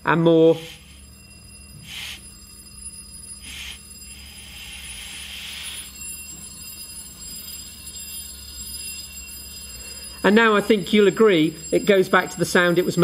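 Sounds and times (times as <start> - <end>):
muffled electric bell ringing: 0.0 - 13.0
air hissing through valve: 0.3 - 2.5, 3.3 - 6.1.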